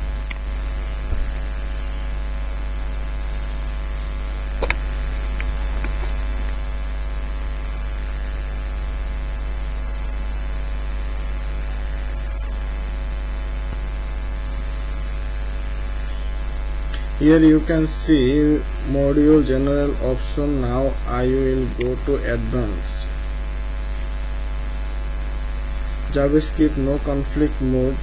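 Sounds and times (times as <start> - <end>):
electrical mains hum: 0.0 - 28.0
static hiss: 0.0 - 28.0
sharp click: 0.2 - 0.5, 4.6 - 6.1.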